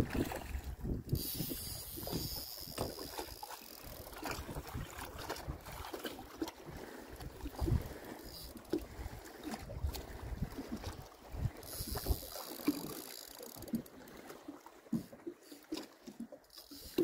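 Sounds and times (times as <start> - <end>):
wind buffeting microphone: 0.0 - 3.2, 4.1 - 5.9, 6.7 - 8.0, 8.8 - 12.3
water lapping at hull: 0.0 - 17.0.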